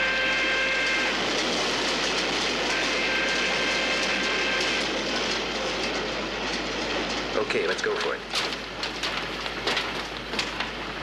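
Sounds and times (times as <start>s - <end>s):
horn-like alarm blasts: 0.0s - 1.2s, 2.7s - 4.9s.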